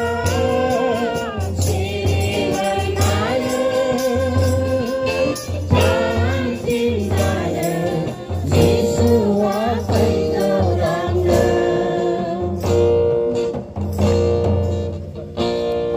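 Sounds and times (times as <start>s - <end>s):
women singing a hymn: 0.0s - 12.7s
hand drum beat: 0.0s - 14.9s.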